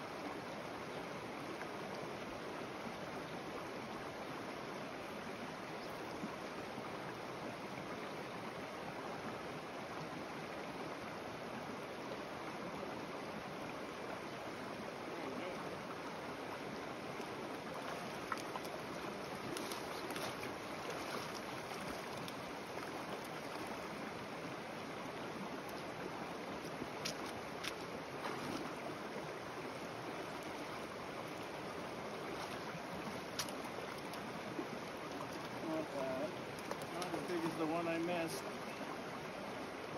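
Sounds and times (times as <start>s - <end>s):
creek water rushing over rocks: 0.0s - 39.9s
faint clicks: 33.3s - 34.2s, 36.5s - 37.2s.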